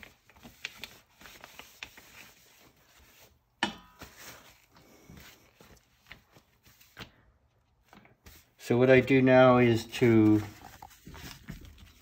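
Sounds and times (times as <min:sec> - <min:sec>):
paper towel tearing: 0:00.0 - 0:03.4
paper towels rustling: 0:00.0 - 0:12.0.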